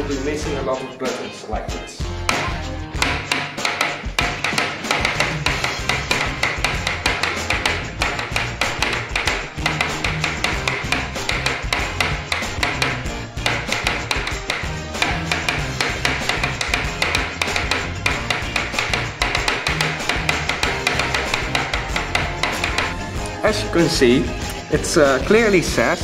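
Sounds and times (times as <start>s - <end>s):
background music with bass: 0.0s - 26.0s
fingertips tapping on tabletop: 2.3s - 23.1s.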